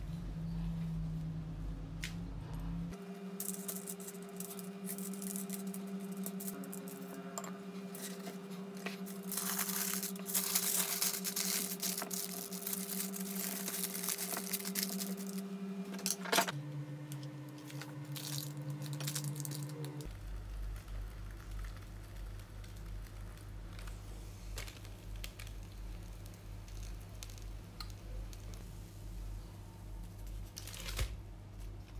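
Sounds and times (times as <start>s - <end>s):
aluminium foil crinkling: 3.4s - 7.2s, 7.9s - 15.4s, 17.6s - 28.6s, 30.1s - 31.9s.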